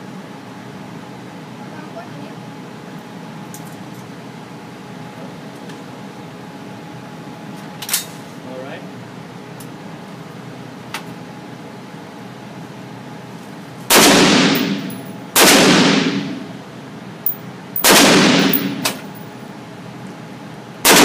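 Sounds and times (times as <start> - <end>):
rifle shots echoing indoors: 13.9 - 16.6, 17.8 - 19.2.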